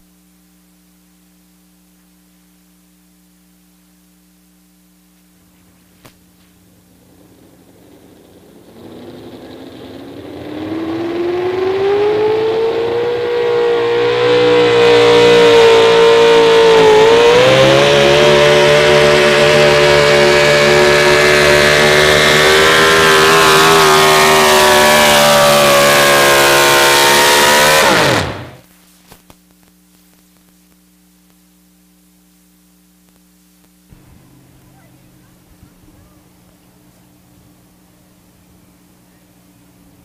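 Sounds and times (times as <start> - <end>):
truck engine at full throttle: 6.7 - 28.6.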